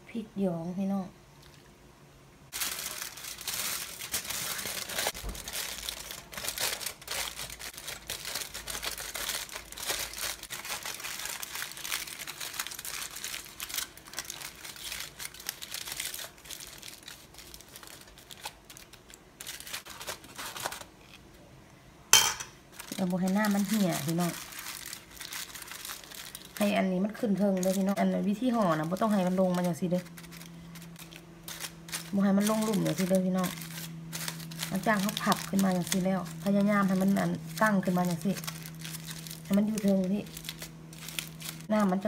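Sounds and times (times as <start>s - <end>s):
aluminium foil crinkling: 2.5s - 21.3s, 22.7s - 42.0s.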